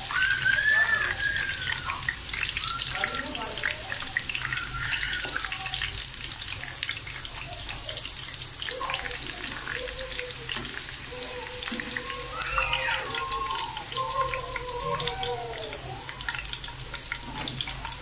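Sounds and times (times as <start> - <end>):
fries sizzling in hot oil: 0.0 - 18.0
faint voice: 8.7 - 16.4.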